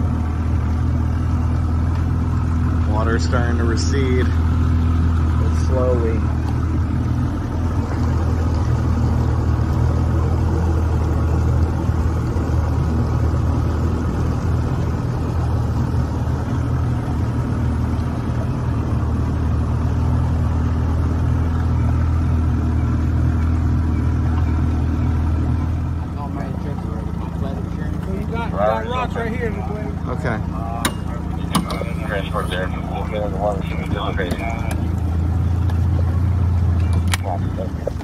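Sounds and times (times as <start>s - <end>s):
outboard motor running: 0.0s - 38.0s.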